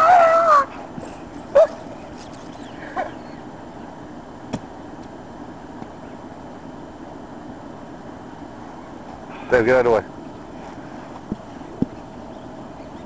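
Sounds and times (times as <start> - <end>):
dog crying high-pitched: 0.0 - 0.8, 1.5 - 3.3
dog yipping: 1.5 - 3.3.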